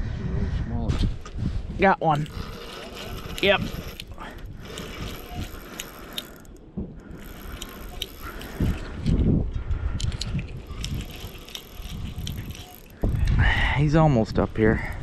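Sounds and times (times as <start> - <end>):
fishing reel ratcheting clicks: 2.2 - 9.2, 10.0 - 13.4
rod handling rumble: 2.2 - 9.4, 10.0 - 13.4.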